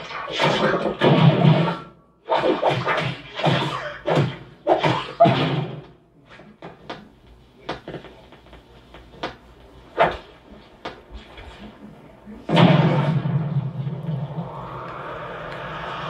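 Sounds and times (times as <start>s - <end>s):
cartoon hits and swishes: 12.5s - 16.0s.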